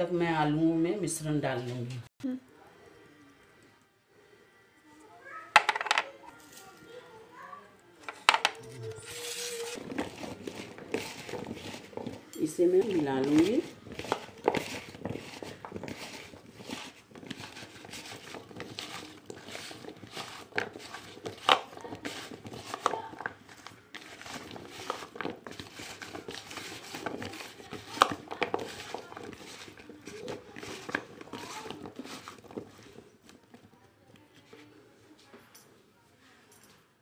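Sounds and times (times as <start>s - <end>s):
potato strips rustling in a bowl: 9.0s - 34.7s.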